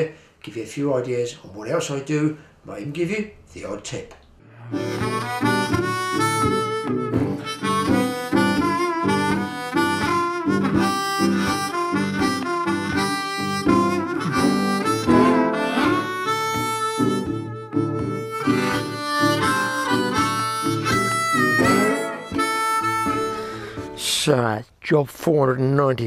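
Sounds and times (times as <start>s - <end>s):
guitar accompaniment: 4.4s - 24.3s
blues harmonica tune: 4.5s - 24.4s.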